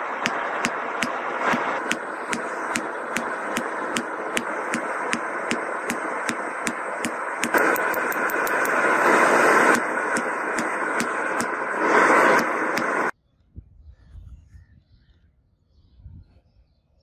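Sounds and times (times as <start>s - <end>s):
loud rushing noise: 0.0s - 13.1s
hammer striking metal: 0.2s - 8.8s.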